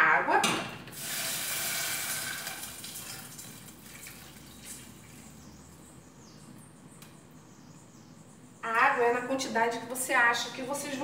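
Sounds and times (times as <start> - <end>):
water pouring into pot: 1.0 - 5.1.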